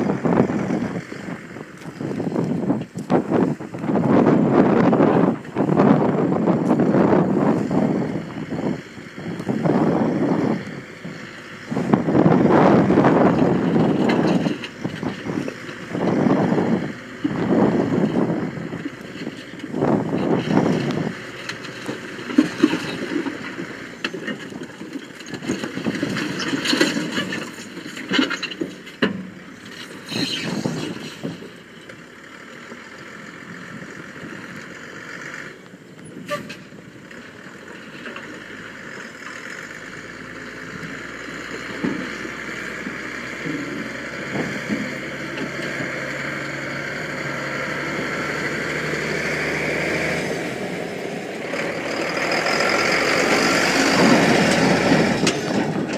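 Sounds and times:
truck engine running: 0.0s - 55.9s
rock and concrete clattering from truck: 11.9s - 32.0s, 51.9s - 55.9s.

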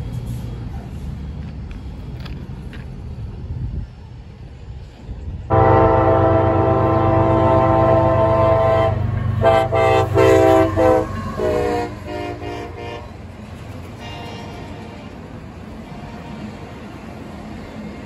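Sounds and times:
locomotive air horn blasts: 5.5s - 13.2s, 14.0s - 15.0s.

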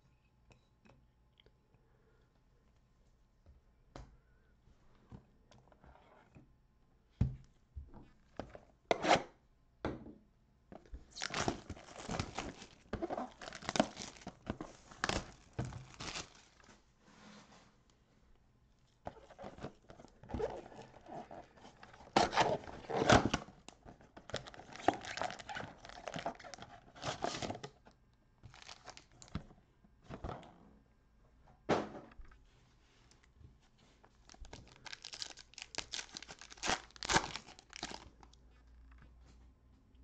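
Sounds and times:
foil wrapper crinkling and ripping: 11.1s - 16.7s, 24.4s - 27.4s, 28.5s - 29.2s, 34.2s - 38.4s.

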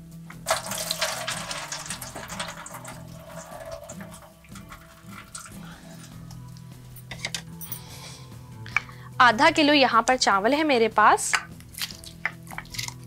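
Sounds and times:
rice splashing into boiling water: 0.4s - 5.7s.

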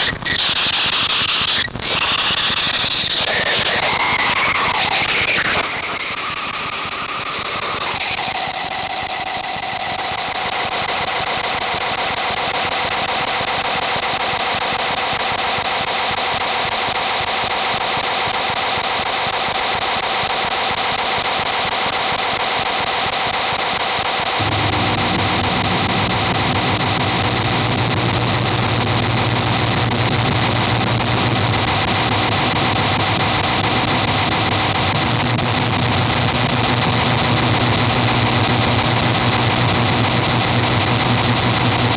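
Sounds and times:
low drone: 24.4s - 31.2s
dense electronic noise: 24.4s - 36.6s.

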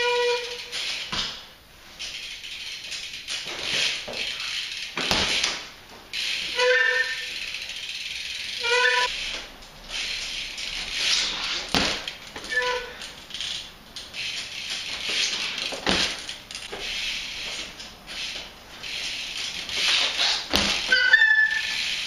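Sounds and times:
short high squeaks: 0.0s - 1.1s, 6.2s - 7.7s, 8.4s - 10.2s, 12.4s - 13.5s, 16.7s - 22.0s
bike tyres skidding on concrete: 0.0s - 22.0s.

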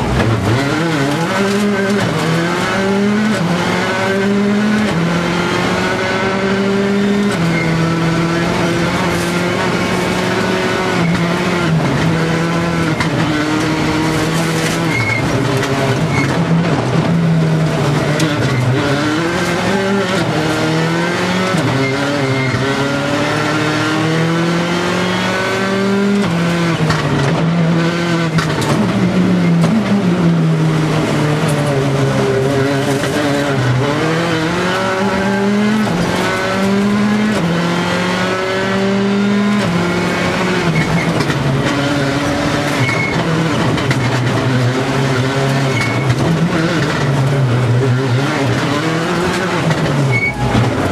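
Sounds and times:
rally car engine revving: 0.0s - 50.9s.

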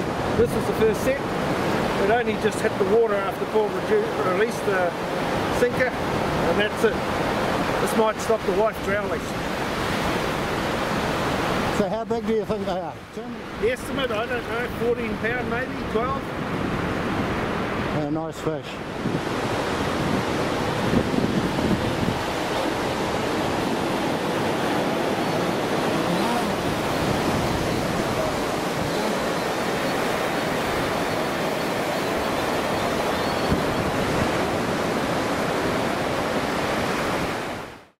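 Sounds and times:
ocean surf breaking: 0.0s - 38.0s
wind buffeting microphone: 18.8s - 37.6s.

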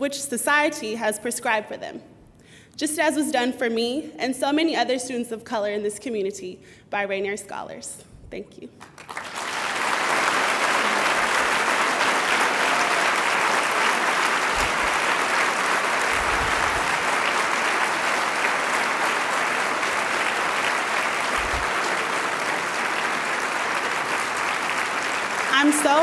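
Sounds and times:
audience applauding: 8.8s - 26.0s.

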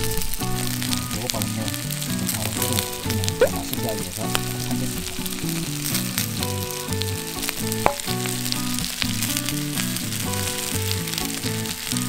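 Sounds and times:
fat spattering crackles: 0.0s - 12.0s
meat sizzling on a griddle: 0.0s - 12.0s
plucked background music: 0.0s - 12.0s
loud fat pop: 7.9s - 8.3s.

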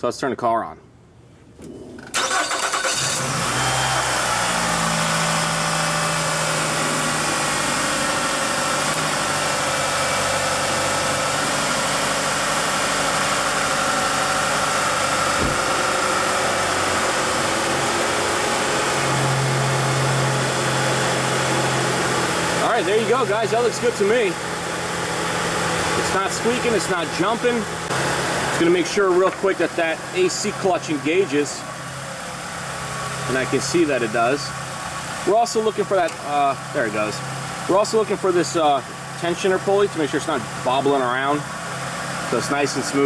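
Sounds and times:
car engine starting and idling: 1.6s - 43.0s
deeper hum: 3.2s - 34.6s.

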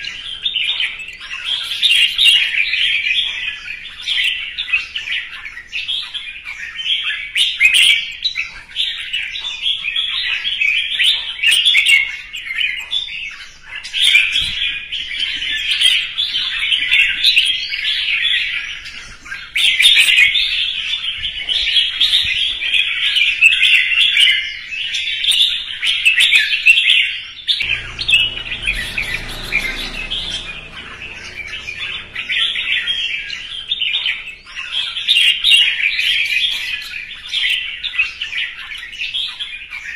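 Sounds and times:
bird chirping song: 0.0s - 39.9s.

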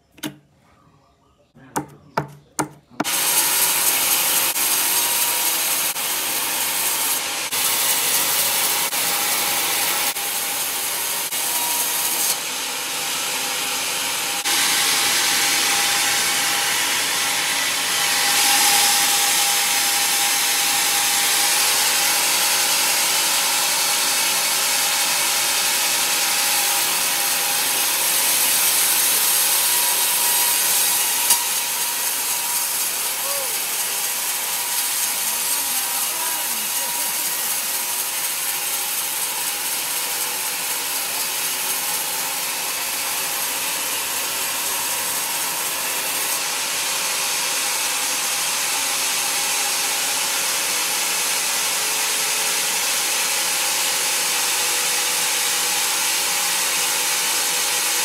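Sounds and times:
sharp knocks: 1.7s - 3.1s
bandsaw cutting log: 1.8s - 58.0s.

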